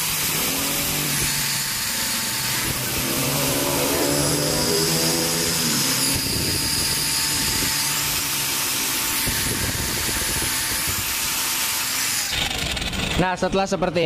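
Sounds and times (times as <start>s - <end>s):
angle grinder grinding steel: 0.0s - 13.2s.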